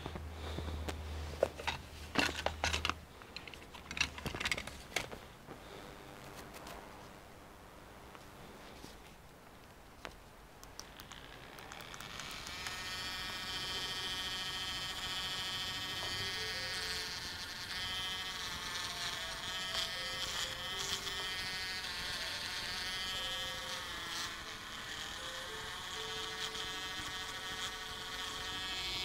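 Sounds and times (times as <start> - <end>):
bit grinding plastic: 10.7 - 29.0
rotary tool whining: 10.8 - 29.0.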